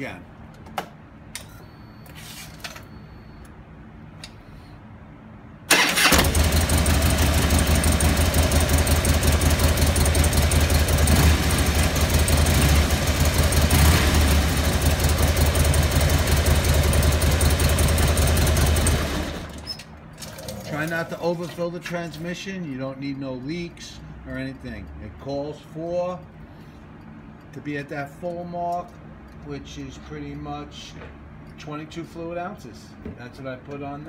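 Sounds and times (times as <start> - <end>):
motorcycle engine rumbling: 5.7 - 19.6
motorcycle electric starter: 5.7 - 19.9.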